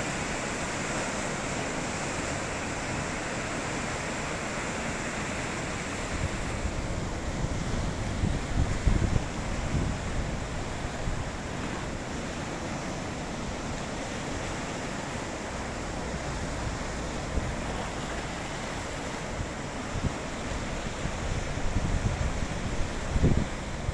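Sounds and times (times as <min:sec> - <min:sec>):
waves breaking on shore: 0:00.0 - 0:23.9
wind buffeting microphone: 0:06.0 - 0:12.1, 0:16.1 - 0:23.9.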